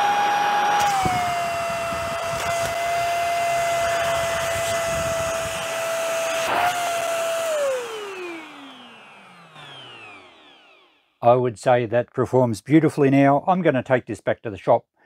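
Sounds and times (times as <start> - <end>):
vacuum cleaner motor whine: 0.0 - 11.2
vacuum motor winding down: 0.0 - 11.2.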